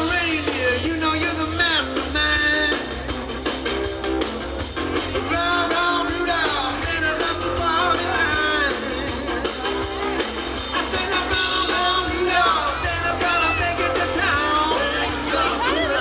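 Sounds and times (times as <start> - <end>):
rock band playing: 0.0 - 16.0
woman singing lead: 10.8 - 16.0.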